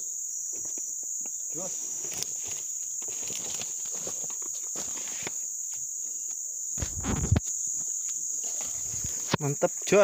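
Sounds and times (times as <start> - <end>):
insects chirring: 0.0 - 10.0
low rustle and thump: 6.8 - 7.5.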